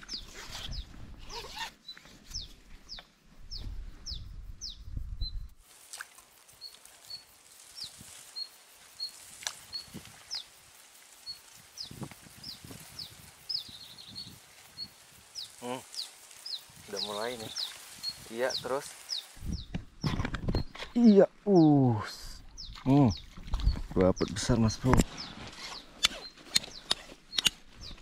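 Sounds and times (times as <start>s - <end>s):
low rumble of wind: 2.4s - 5.6s, 19.3s - 21.4s.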